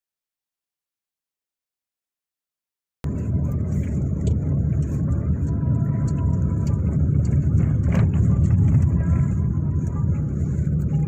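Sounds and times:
road vehicle rumble: 0:03.0 - 0:11.0.

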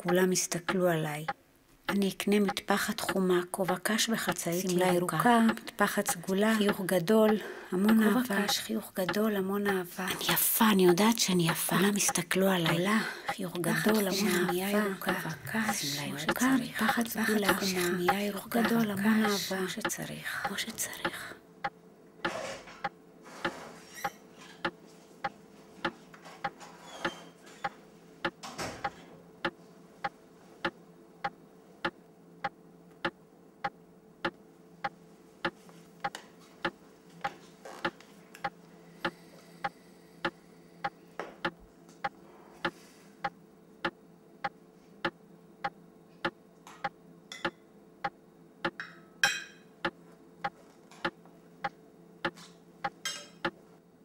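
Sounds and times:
clock ticking: 0:00.0 - 0:09.2, 0:10.3 - 0:21.8
low steady hum: 0:00.0 - 0:54.0.

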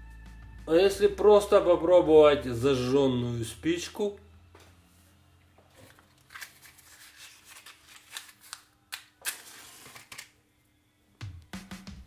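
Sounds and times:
matchbox rattling: 0:06.0 - 0:10.3
match striking: 0:06.3 - 0:10.3.

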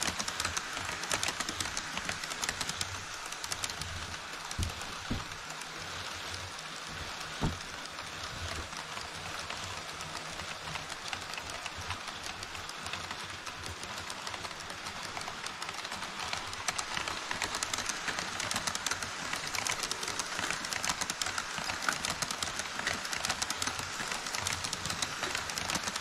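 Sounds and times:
model train wheels clicking: 0:00.0 - 0:26.0
rolling hiss: 0:09.2 - 0:26.0.

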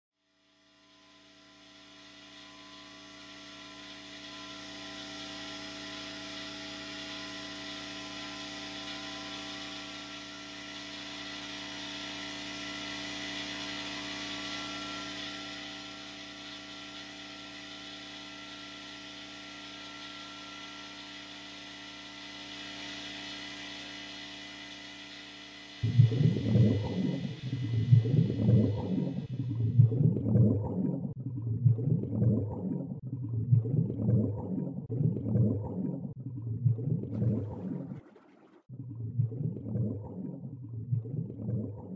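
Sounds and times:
machine hum: 0:25.7 - 0:41.9.

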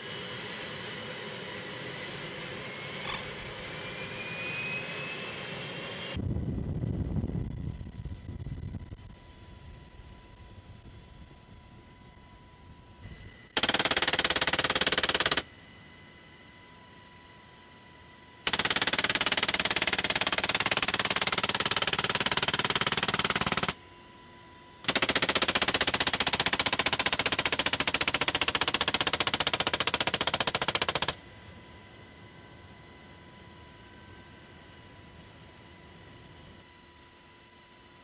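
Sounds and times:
heavy machine gun bursts: 0:13.6 - 0:15.4, 0:18.5 - 0:23.8, 0:24.9 - 0:31.2.

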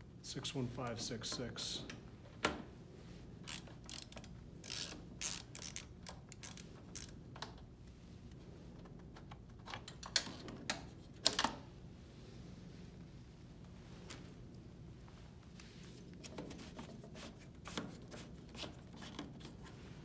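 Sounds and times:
screwdriver clicks and rattles: 0:03.5 - 0:07.6, 0:09.1 - 0:11.6.

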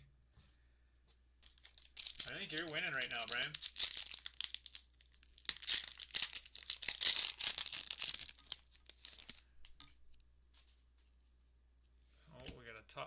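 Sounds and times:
foil wrapper tearing and crinkling: 0:01.4 - 0:09.4.

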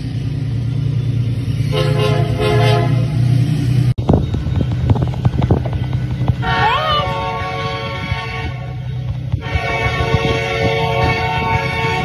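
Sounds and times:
locomotive engine rumbling: 0:00.0 - 0:12.0
train air horn blast: 0:01.6 - 0:03.3, 0:06.4 - 0:08.8, 0:09.4 - 0:12.0.

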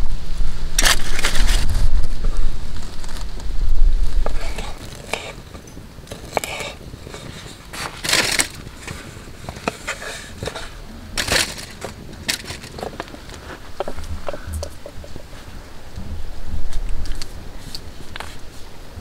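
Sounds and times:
rustling scrapes on board: 0:04.2 - 0:14.4.

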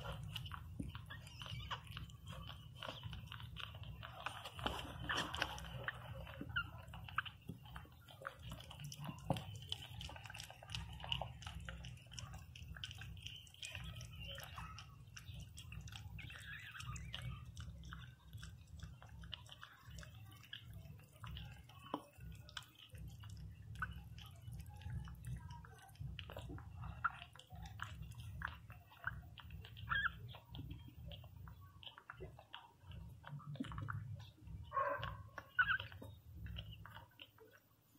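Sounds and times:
puppy squeaks: 0:00.0 - 0:10.0, 0:12.9 - 0:18.0, 0:26.3 - 0:31.3, 0:33.5 - 0:37.0
puppies suckling: 0:00.0 - 0:37.9.

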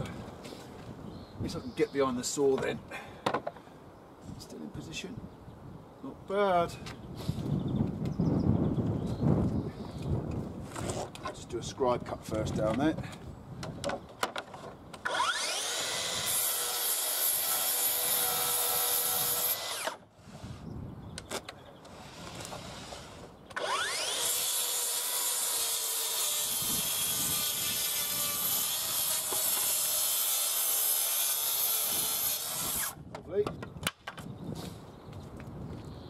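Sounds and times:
circular saw cutting wood: 0:15.0 - 0:20.0, 0:21.9 - 0:33.0.

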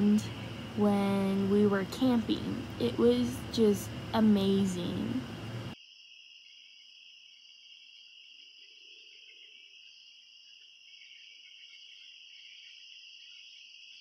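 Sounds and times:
crickets chirping: 0:03.8 - 0:14.0.

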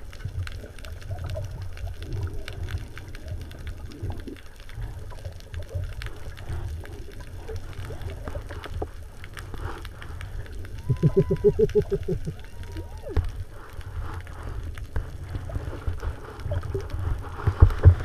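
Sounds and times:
sharp clicks and crackles: 0:00.0 - 0:18.0
underwater rumble of moving water: 0:00.0 - 0:18.0.

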